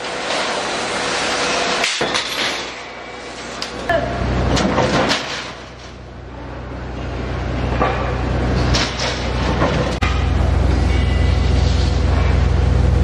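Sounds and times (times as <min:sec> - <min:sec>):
workshop machine humming: 0:00.0 - 0:13.0
metal knocks and clanks: 0:07.7 - 0:11.2.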